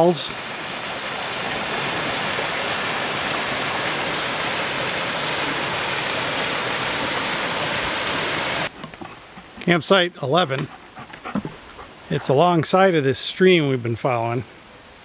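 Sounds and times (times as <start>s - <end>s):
waterfall cascading over rocks: 0.0s - 10.5s.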